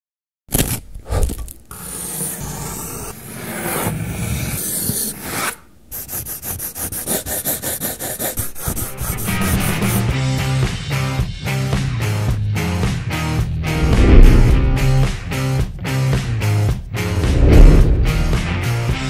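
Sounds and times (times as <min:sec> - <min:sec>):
pencil hatching on paper: 0:00.9 - 0:10.1
pencil scraping across paper: 0:01.1 - 0:10.1.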